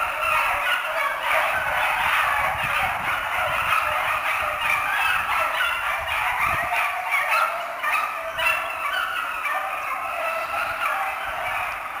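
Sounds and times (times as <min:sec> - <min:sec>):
hounds baying in chorus: 0:00.0 - 0:12.0.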